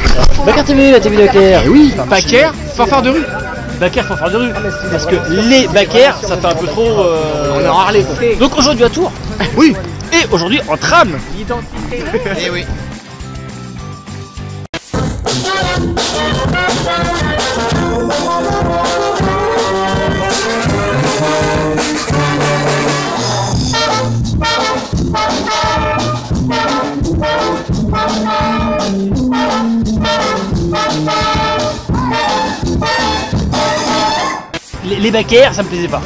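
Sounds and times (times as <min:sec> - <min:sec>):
brass band playing: 0:01.6 - 0:06.8, 0:15.0 - 0:34.5.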